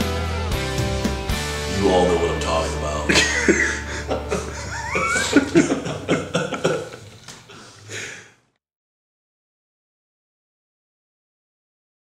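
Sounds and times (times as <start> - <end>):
men laughing: 2.9 - 8.2.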